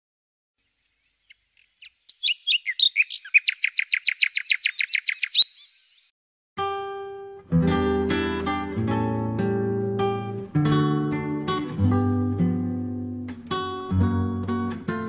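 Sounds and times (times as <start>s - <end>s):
songbird chirping and trilling: 0.6s - 6.1s.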